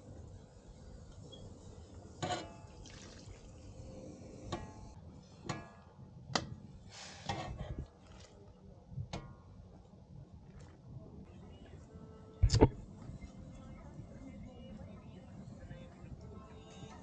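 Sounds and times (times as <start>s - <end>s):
liquid splashing: 2.8s - 3.5s.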